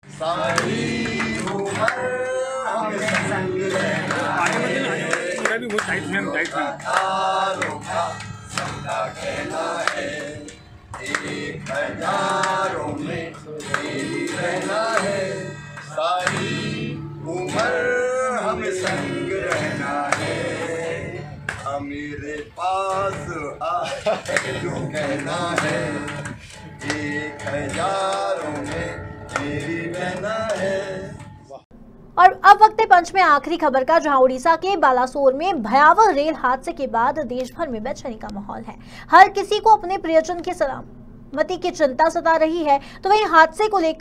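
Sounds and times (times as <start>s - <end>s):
people singing together: 0.0s - 31.5s
acoustic guitar strumming: 0.0s - 32.0s.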